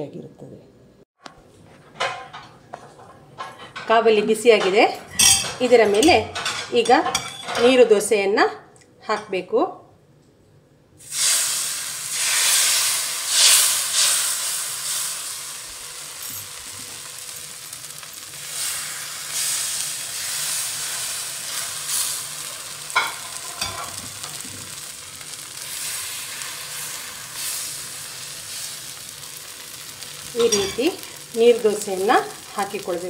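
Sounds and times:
batter sizzling on hot pan: 0:11.0 - 0:33.0.

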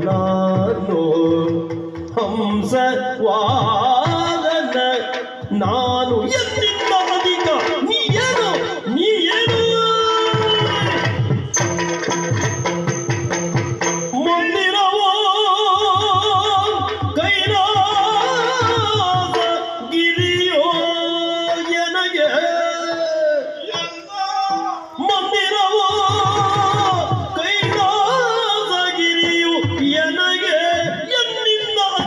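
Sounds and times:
man singing with vibrato: 0:00.0 - 0:12.8, 0:13.8 - 0:32.0.

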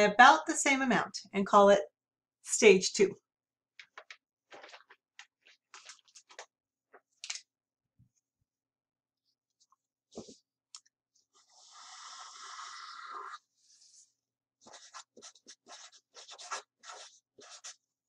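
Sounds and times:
marker scratching on paper: 0:14.6 - 0:17.8.

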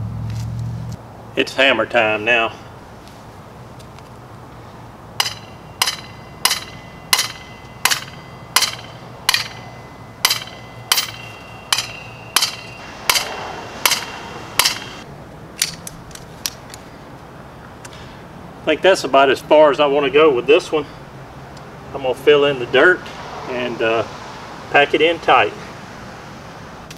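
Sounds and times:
sledgehammer striking metal rod: 0:05.2 - 0:15.0.

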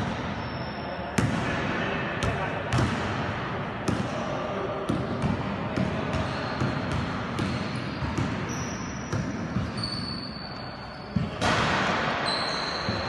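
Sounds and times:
sneaker squeaks: 0:00.1 - 0:01.2, 0:06.0 - 0:11.5, 0:12.1 - 0:13.0
basketball bouncing on court: 0:02.2 - 0:03.2, 0:03.8 - 0:04.1, 0:04.9 - 0:10.2.

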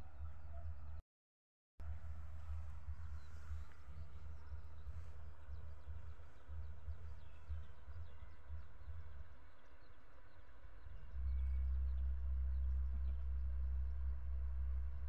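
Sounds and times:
low rumble: 0:01.8 - 0:09.6, 0:10.7 - 0:15.0
small birds chirping: 0:02.2 - 0:14.1.

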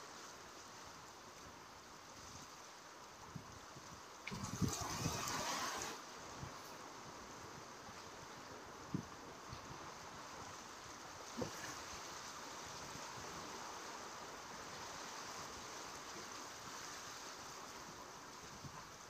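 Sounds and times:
wind: 0:00.0 - 0:19.0
sea waves against rocks: 0:04.2 - 0:19.0.

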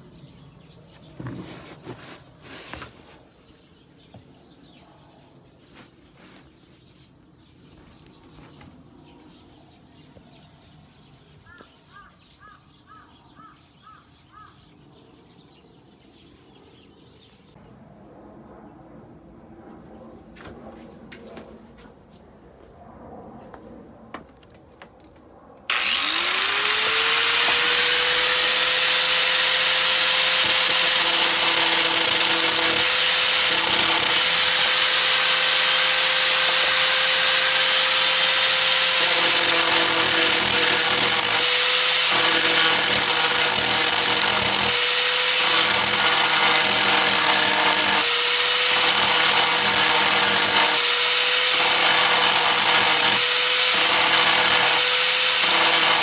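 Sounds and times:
electric angle grinder running: 0:25.7 - 0:56.0.

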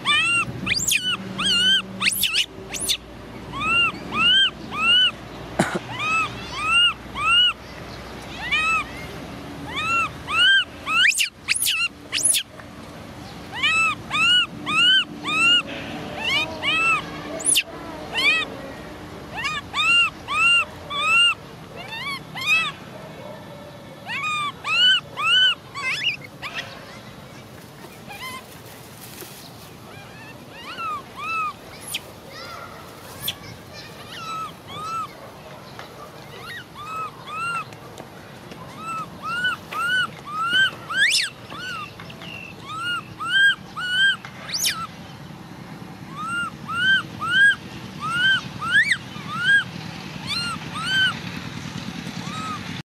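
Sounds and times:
shrill upward squeals: 0:00.0 - 0:05.2
baby monkey coo calls: 0:00.0 - 0:07.6, 0:08.4 - 0:12.5, 0:13.4 - 0:27.1, 0:27.8 - 0:29.2, 0:29.8 - 0:35.2, 0:36.2 - 0:37.8, 0:38.7 - 0:45.0, 0:46.1 - 0:51.2, 0:52.2 - 0:52.8.

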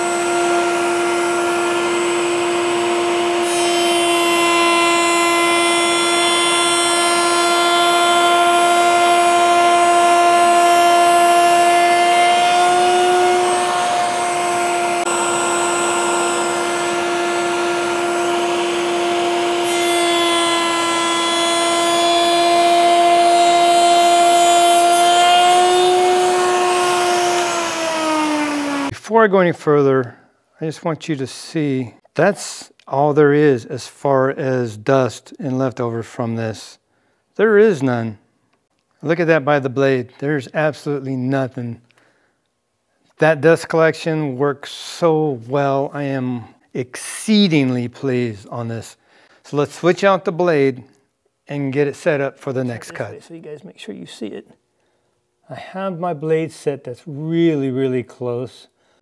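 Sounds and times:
router high whine: 0:00.0 - 0:29.0.

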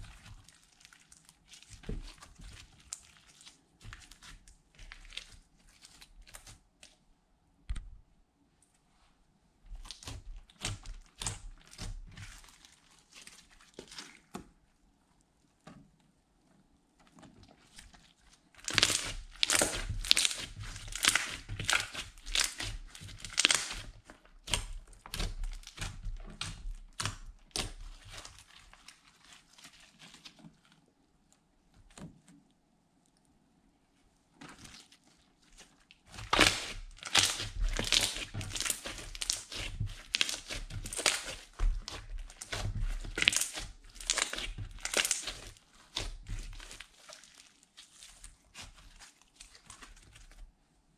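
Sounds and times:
slime sticky clicks and crackles: 0:18.6 - 0:28.7, 0:36.1 - 0:50.4.

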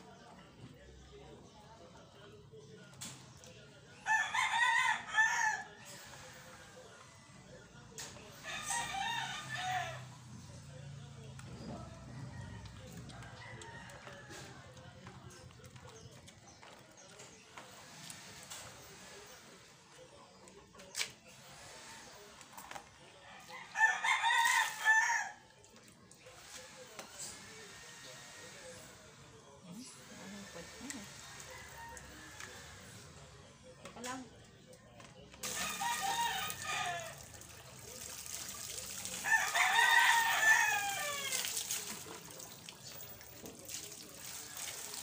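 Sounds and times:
water poured over a wet dog: 0:35.4 - 0:39.8, 0:41.2 - 0:45.0
rooster crowing: 0:35.5 - 0:37.3, 0:39.2 - 0:41.5.

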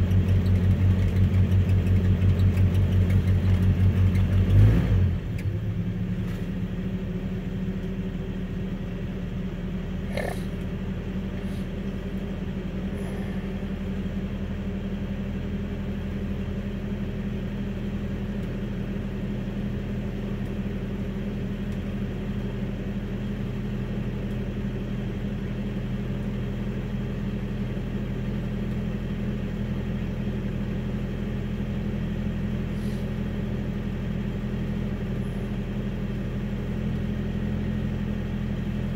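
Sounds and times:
vehicle engine idling: 0:00.0 - 0:38.9.

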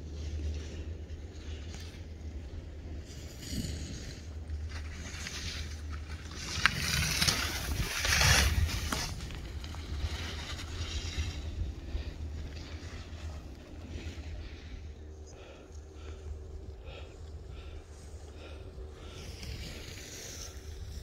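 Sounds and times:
wind rumble on microphone: 0:00.0 - 0:15.1, 0:16.0 - 0:21.0
skis hissing through snow: 0:03.0 - 0:11.8, 0:19.1 - 0:21.0.

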